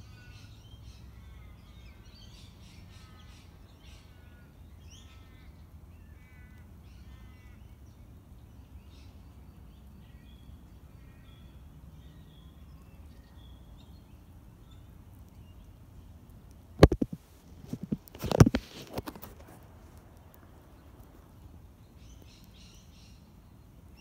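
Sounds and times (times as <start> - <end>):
faint bird calls: 0.0 - 17.1
phone case handling noise: 16.8 - 19.6.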